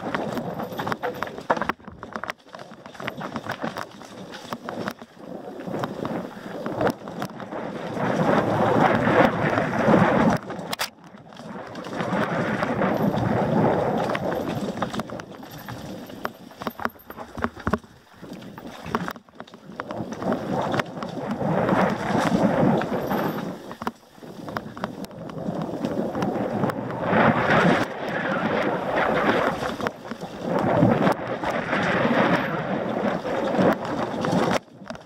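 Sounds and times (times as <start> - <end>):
wind rushing over microphone: 0.0 - 2.1, 5.2 - 35.0
sharp knocks and clicks: 0.0 - 5.1, 14.7 - 21.2, 23.8 - 26.8
bike rattling over bumps: 0.0 - 35.0
bike tyre noise: 0.0 - 35.0.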